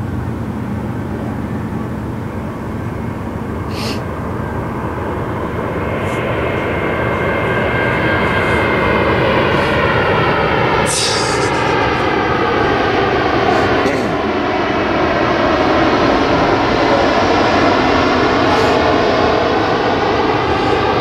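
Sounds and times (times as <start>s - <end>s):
high engine whine: 0.0s - 21.0s
low-flying airplane engine: 0.0s - 21.0s.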